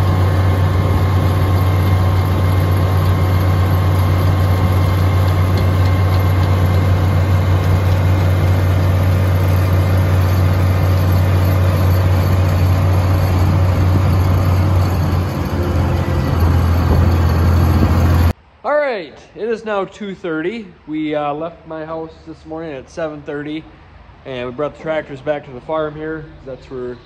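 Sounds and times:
tractor engine droning: 0.0s - 18.4s.

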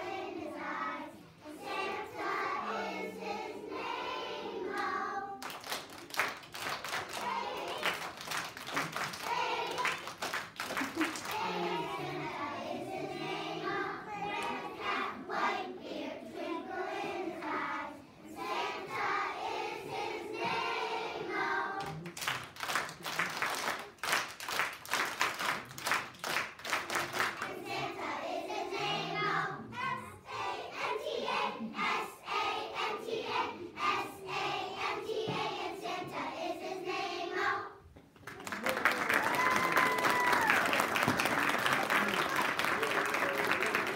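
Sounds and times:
children's choir singing: 0.0s - 22.0s, 26.7s - 38.0s, 39.5s - 43.9s
rhythmic hand clapping: 4.8s - 11.8s, 21.8s - 27.6s, 38.2s - 43.9s.

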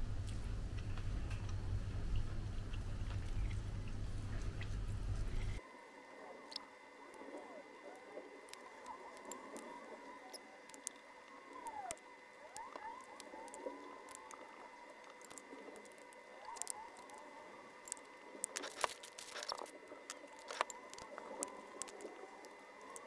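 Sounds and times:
faint rising and falling whines: 0.0s - 23.0s
plastic packet crinkling and tearing: 18.5s - 22.0s.

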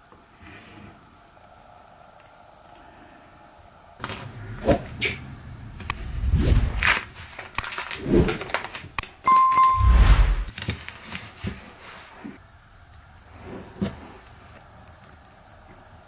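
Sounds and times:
masking tape rustling: 5.8s - 9.0s
steady high tone: 9.3s - 10.5s.

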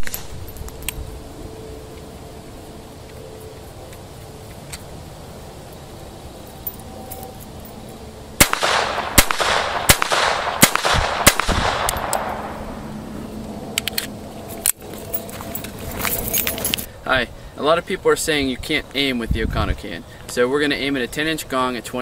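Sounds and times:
pistol shots with echo: 8.4s - 12.7s.

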